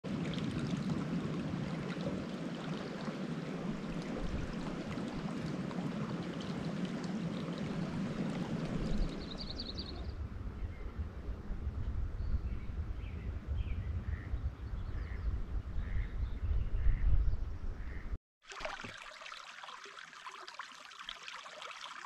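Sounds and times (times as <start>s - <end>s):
creek babbling: 0.0s - 10.1s, 18.4s - 22.0s.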